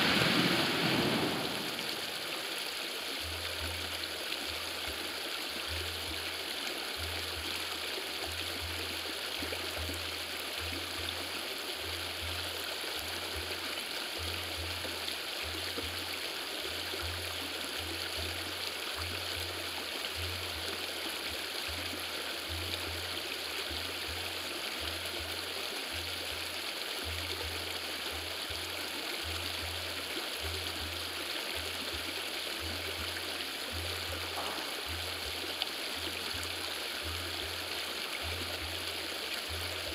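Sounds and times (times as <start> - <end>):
low rumble: 0.0 - 2.3
river stream rushing: 0.0 - 39.9.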